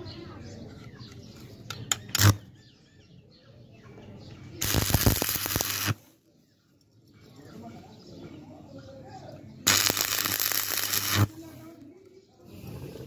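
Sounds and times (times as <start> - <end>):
welding arc crackling hiss: 4.6 - 6.0, 9.7 - 11.4.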